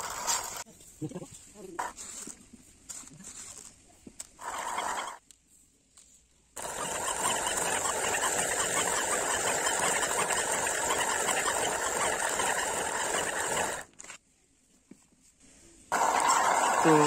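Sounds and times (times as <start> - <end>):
stone quern grinding: 6.6 - 13.9.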